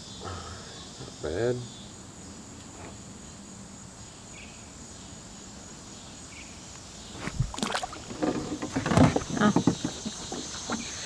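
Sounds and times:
crickets and insects droning: 0.0s - 11.0s
sharp knocks: 7.2s - 10.8s
fish splashing into water: 7.2s - 10.9s.

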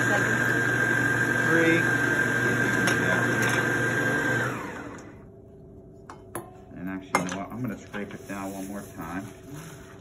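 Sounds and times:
stand mixer motor whine: 0.0s - 5.3s.

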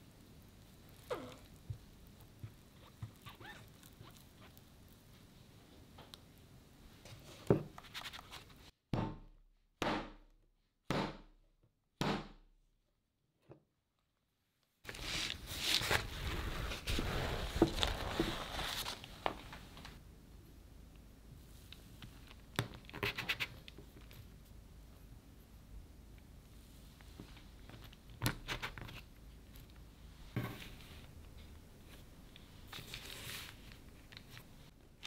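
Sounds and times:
rustling: 14.9s - 20.0s, 26.6s - 34.8s.

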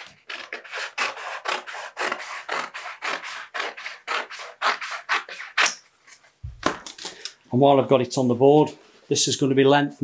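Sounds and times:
shears snipping wallpaper: 0.0s - 6.2s.

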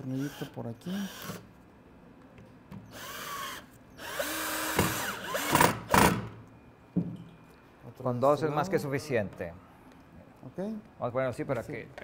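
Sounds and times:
power drill driving screw: 0.1s - 1.4s, 2.9s - 6.2s.

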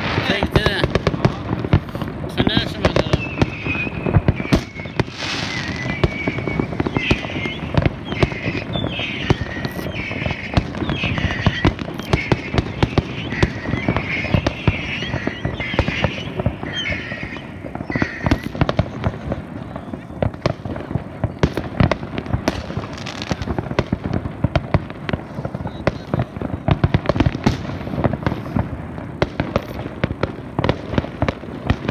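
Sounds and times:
fireworks bangs and crackles: 0.0s - 31.9s.

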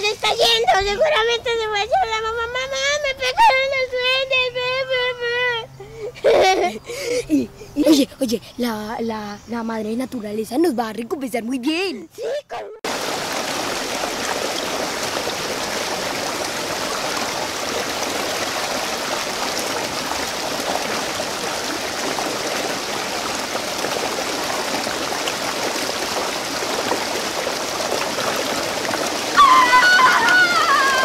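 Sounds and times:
stream running over stones: 12.8s - 31.0s.

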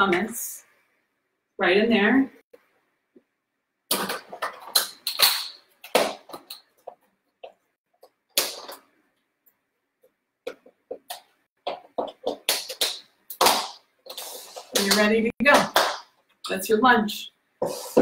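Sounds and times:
plastic containers clacking: 3.9s - 8.9s.

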